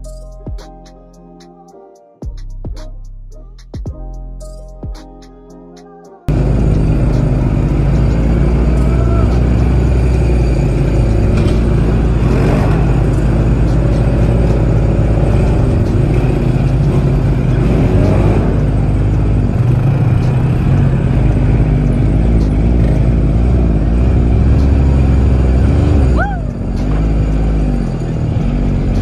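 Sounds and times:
off-road vehicle engine: 6.3s - 29.0s
quad bike engines: 6.3s - 29.0s.

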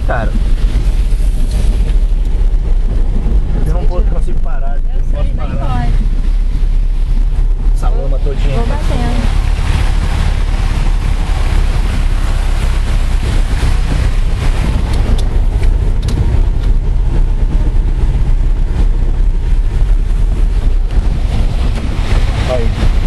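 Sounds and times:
car engine and tyres rumbling: 0.0s - 23.0s.

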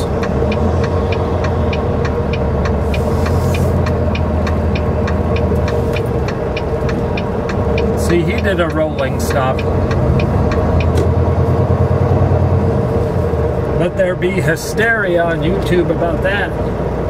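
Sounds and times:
light regular ticking: 0.0s - 12.2s
diesel truck engine idling: 0.0s - 17.0s
brief hiss: 2.9s - 3.8s.

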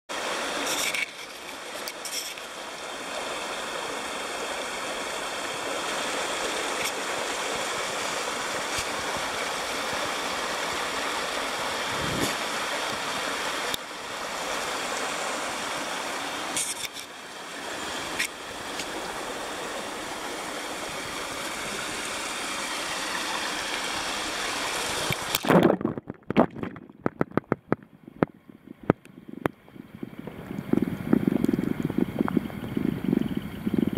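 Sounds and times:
water splashing over stones: 0.1s - 27.9s
muffled underwater knocks: 25.4s - 29.0s.

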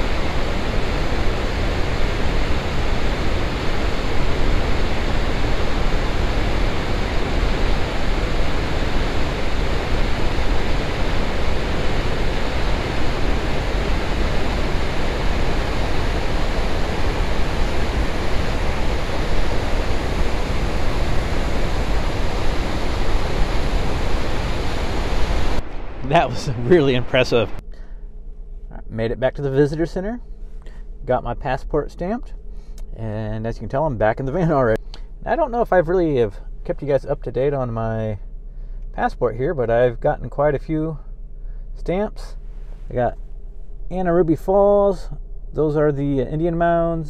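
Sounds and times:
waterfall rushing: 0.0s - 27.6s.

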